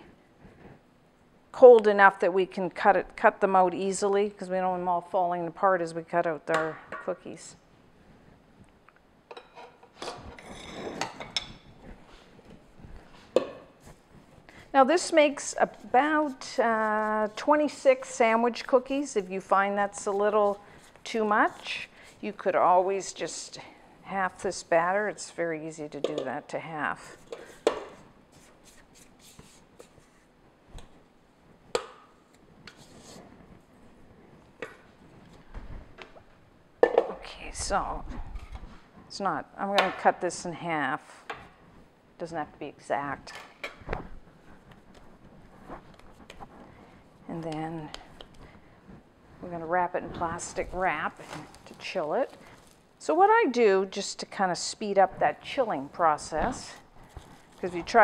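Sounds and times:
metal bowl clinking and rubbing: 0:09.3 - 0:11.9, 0:14.9 - 0:23.3
soft handling noises: 0:43.6 - 0:53.0, 0:55.6 - 0:58.0.

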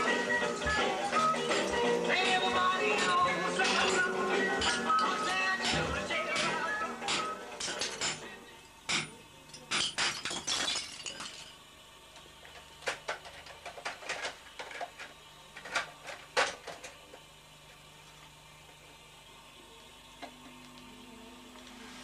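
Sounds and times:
tiles cracking under a hammer: 0:08.9 - 0:11.6.

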